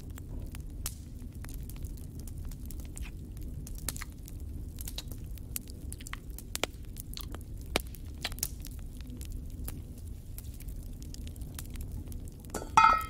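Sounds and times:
low steady hum: 9.2s - 13.0s.

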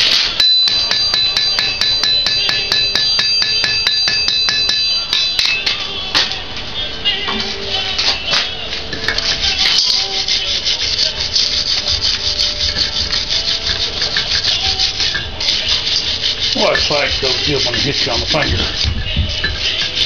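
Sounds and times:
wire brush scraping hot iron: 7.4s - 20.0s.

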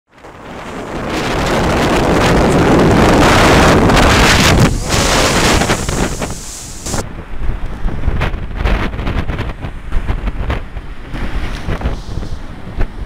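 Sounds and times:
wind buffeting microphone: 0.1s - 13.0s
surf breaking against rocks: 0.5s - 7.0s.

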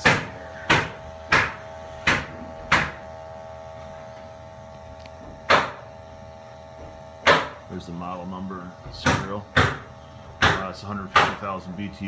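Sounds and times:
loud sharp knocks: 0.0s - 3.1s, 5.2s - 5.8s, 7.2s - 7.6s, 8.9s - 11.4s
steady even hum: 0.0s - 12.0s.

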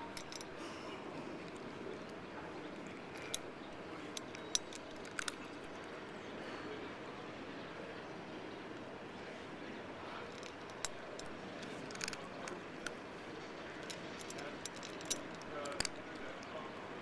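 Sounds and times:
cat crunching dry kibble: 0.0s - 5.8s, 10.2s - 13.0s, 13.7s - 16.5s.

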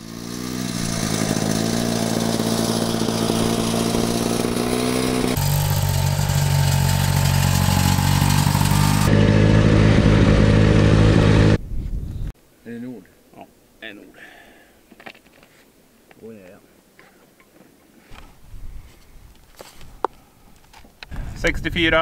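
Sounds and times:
small engine running: 0.0s - 11.6s.

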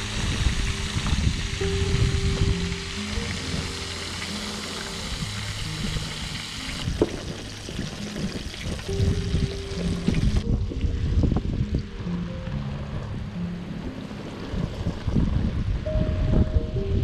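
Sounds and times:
fish frying in hot oil: 0.0s - 10.4s
background music: 0.0s - 17.0s.

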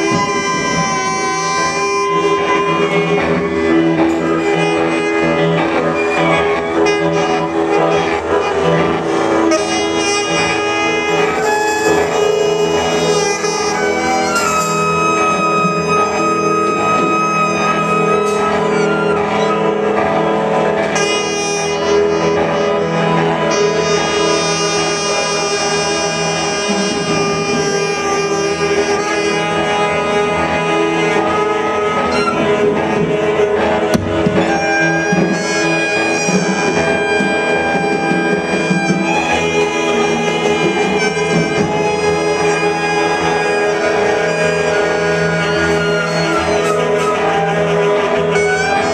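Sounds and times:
saxophones and guitar ensemble: 0.0s - 48.9s.

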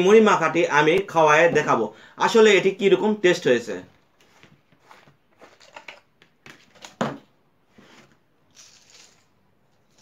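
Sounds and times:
puffed rice rustling: 8.5s - 10.0s.

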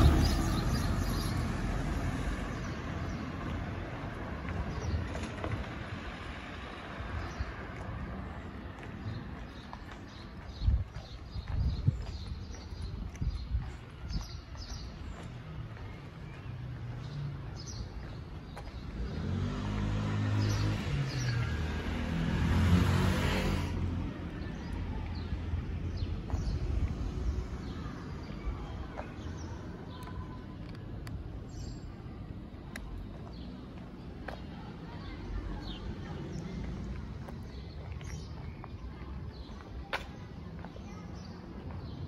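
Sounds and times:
vehicle passing by: 0.0s - 8.9s, 15.4s - 27.8s
small birds chirping: 0.0s - 22.1s, 23.2s - 42.0s.

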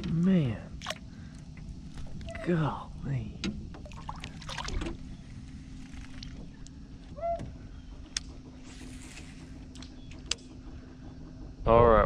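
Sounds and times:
low motor hum: 0.0s - 12.0s
fish splashing into water: 0.8s - 1.1s, 3.8s - 5.0s.

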